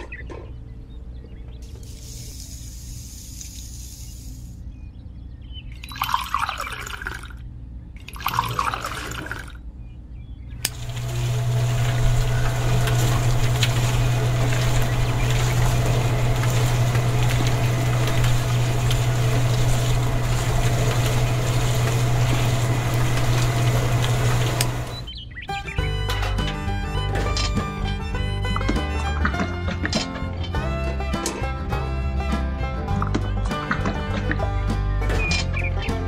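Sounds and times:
water pouring into a can: 5.8 - 7.4, 8.0 - 9.6, 10.7 - 25.1
wet mix turning in drum: 10.6 - 25.1
small electric motor humming: 10.7 - 25.1.

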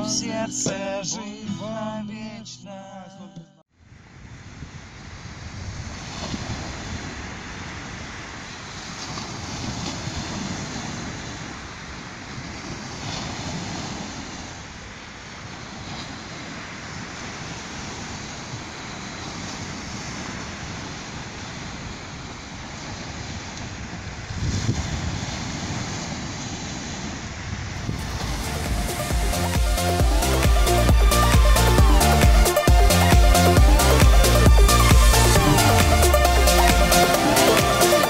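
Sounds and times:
wind rumbling on microphone: 3.8 - 32.4
waves breaking on sandy beach: 3.9 - 38.0.

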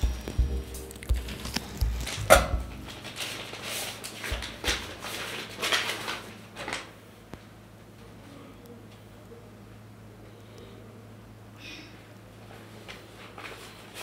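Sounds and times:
soft low thumps: 0.0 - 3.0.

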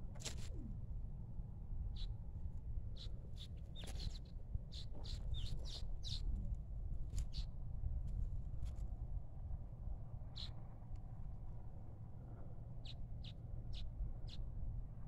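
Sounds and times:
low steady rumble: 0.0 - 15.0
small birds chirping: 3.0 - 6.4.

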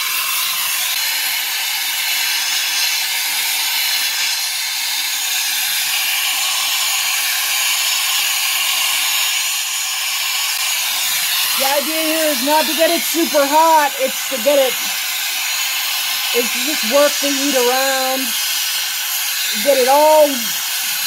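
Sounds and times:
gas torch flame hissing: 0.0 - 21.0.

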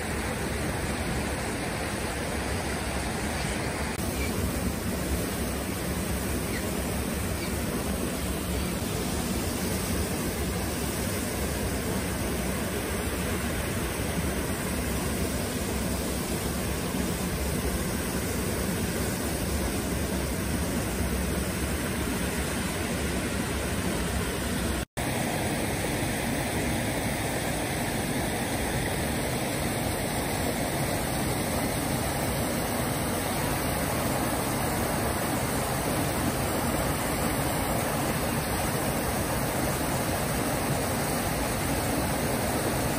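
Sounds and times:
river rushing over rocks: 21.0 - 42.9.

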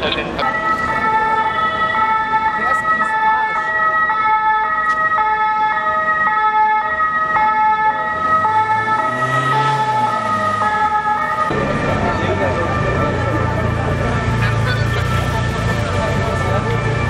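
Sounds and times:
two-tone emergency siren: 0.4 - 17.0
passing vehicle engine: 8.0 - 17.0.

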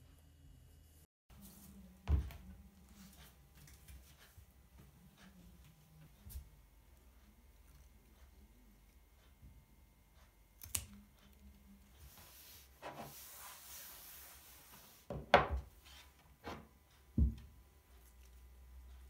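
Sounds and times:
scissors snipping a stem: 10.6 - 11.1
cloth rubbing on wooden table: 12.1 - 15.2.

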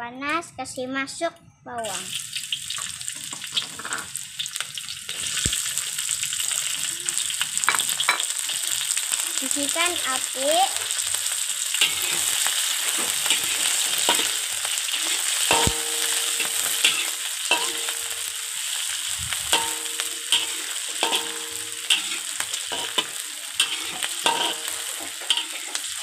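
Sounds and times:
food sizzling in hot oil: 1.8 - 26.0
wok ringing: 11.7 - 26.0
metal spatula scraping wok: 11.8 - 26.0.

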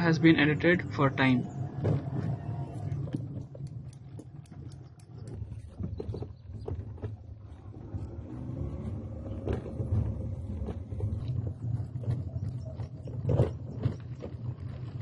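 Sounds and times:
car engine and road rumble: 0.0 - 15.0
knocks and rattles from bumps: 0.0 - 15.0.

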